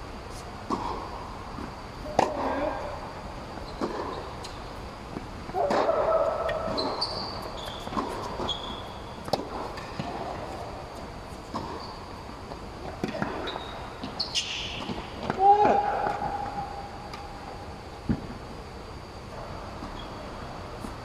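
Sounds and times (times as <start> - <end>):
tennis balls struck by rackets: 0.6 - 2.8, 3.8 - 7.0, 7.7 - 8.5, 9.1 - 11.8
balls bouncing on hard court: 1.6 - 2.8, 3.7 - 11.9
shoes squeaking on court: 3.5 - 15.3, 19.7 - 21.0.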